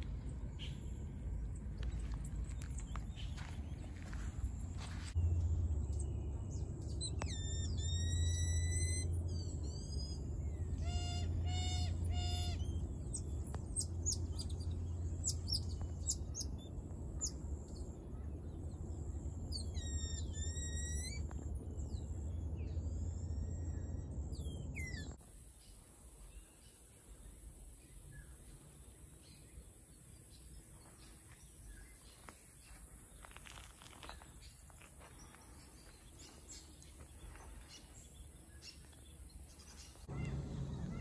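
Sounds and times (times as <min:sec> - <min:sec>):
steady low rumble: 0:00.0 - 0:25.2, 0:32.6 - 0:41.0
high-pitched chirps and whistling calls: 0:06.9 - 0:16.6, 0:19.5 - 0:22.0.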